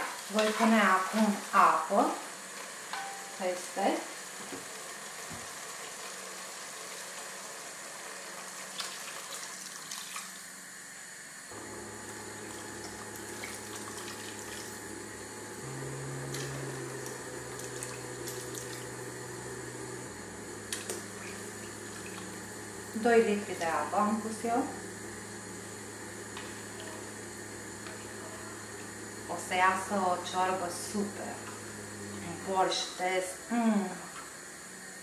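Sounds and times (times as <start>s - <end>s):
water pouring into a pot: 4.7s - 10.6s.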